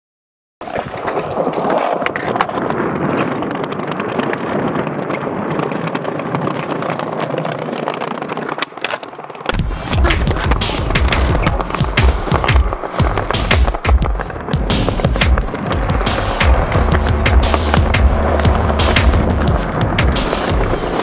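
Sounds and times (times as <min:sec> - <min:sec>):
skateboard clicks and knocks: 0:00.6 - 0:21.0
skateboard wheels rolling on concrete: 0:00.6 - 0:21.0
deep bass sound: 0:09.6 - 0:21.0.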